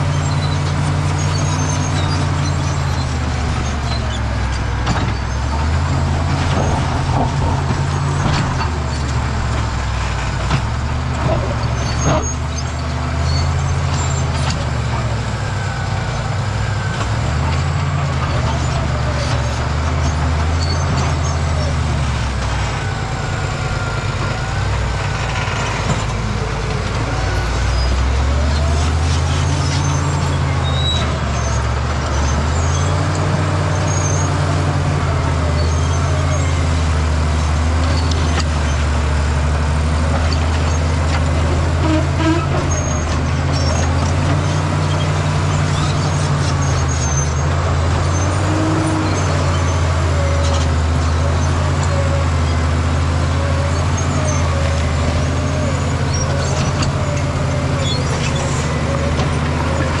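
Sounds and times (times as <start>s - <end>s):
wavering squeal: 0.0s - 4.5s, 27.1s - 34.4s, 53.6s - 60.0s
bulldozer diesel engine: 0.0s - 60.0s
rock and dirt clatter: 0.0s - 60.0s.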